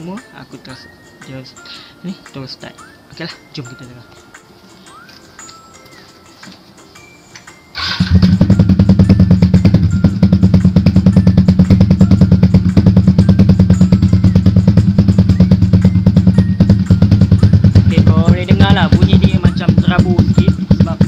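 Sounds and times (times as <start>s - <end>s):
motorcycle engine idling: 7.8s - 21.0s.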